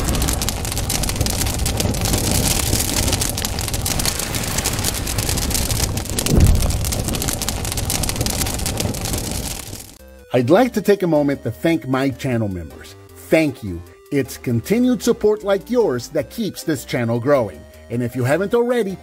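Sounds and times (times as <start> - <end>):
crackling fire: 0.0 - 10.0
gushing water: 0.0 - 10.0
low thump: 6.1 - 8.4.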